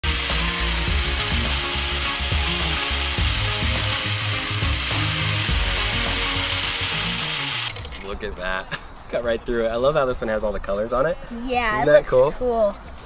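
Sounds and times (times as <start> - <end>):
angle grinder cutting rubber: 0.0 - 8.1.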